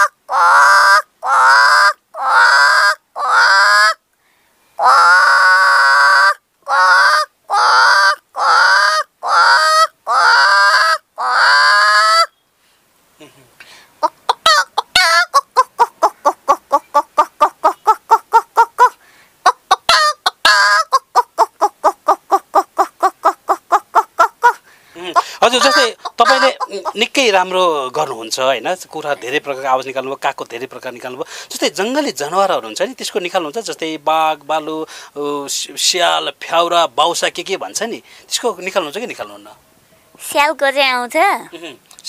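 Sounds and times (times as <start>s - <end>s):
woman imitating chicken calls: 0.0s - 4.0s, 14.0s - 19.0s, 19.7s - 27.1s.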